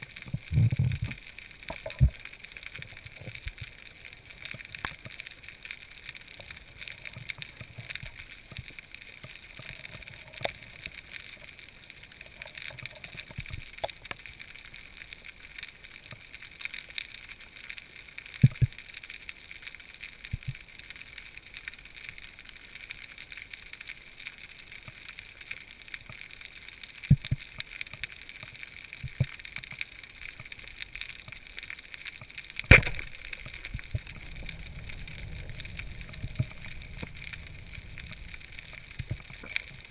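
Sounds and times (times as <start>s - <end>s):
underwater hiss: 32.7s - 39.9s.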